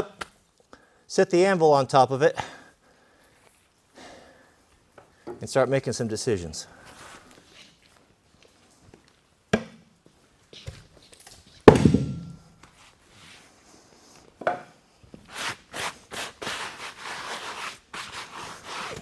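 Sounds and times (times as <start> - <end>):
heavy wooden thunks: 11.7 - 12.4
rubbing scraping strokes: 15.3 - 19.0.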